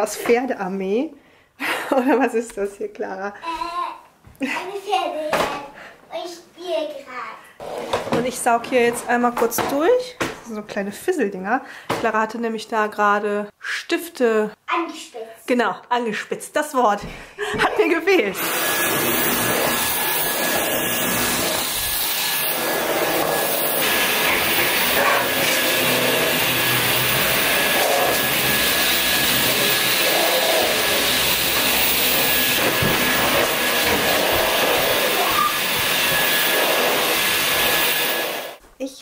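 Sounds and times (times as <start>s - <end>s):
stick vacuum cleaner running: 17.6s - 38.6s.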